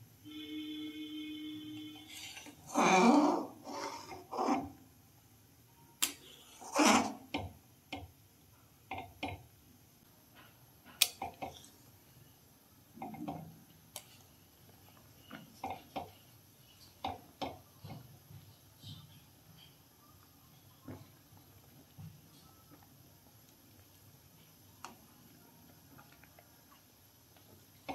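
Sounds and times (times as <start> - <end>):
metal spatula scraping metal pan: 2.0 - 4.7.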